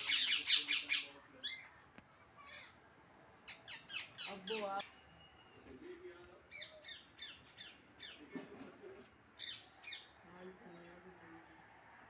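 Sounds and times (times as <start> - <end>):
parakeet squawking: 0.0 - 1.6.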